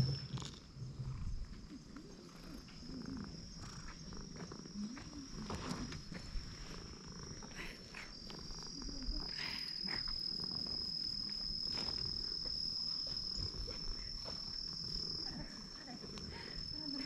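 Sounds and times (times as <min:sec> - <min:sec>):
high-pitched insect drone: 0:02.2 - 0:17.0.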